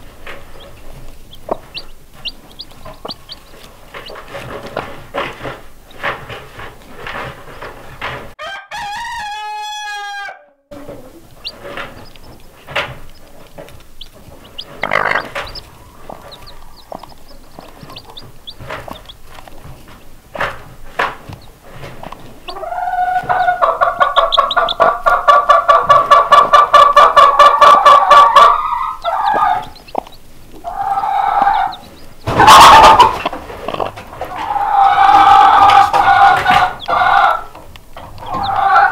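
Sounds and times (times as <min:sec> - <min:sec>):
chickens calling: 0:00.0 - 0:38.9
harsh chicken squawk: 0:08.4 - 0:11.6, 0:14.5 - 0:16.9, 0:22.5 - 0:30.0, 0:30.6 - 0:37.6, 0:38.2 - 0:38.9
rapidly pulsing chicken call: 0:22.4 - 0:33.3, 0:34.2 - 0:37.6, 0:38.2 - 0:38.9.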